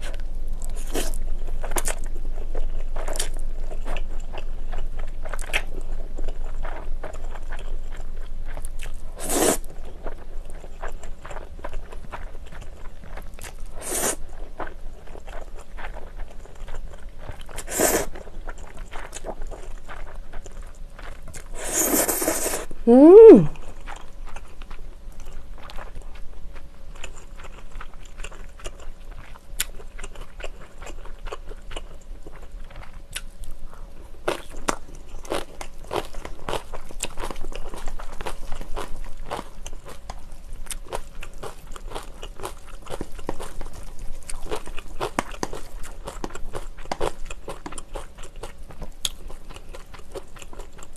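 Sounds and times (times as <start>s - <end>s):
slurping noodles: 9.2s - 9.6s, 13.8s - 14.2s, 17.6s - 18.1s, 21.6s - 23.3s.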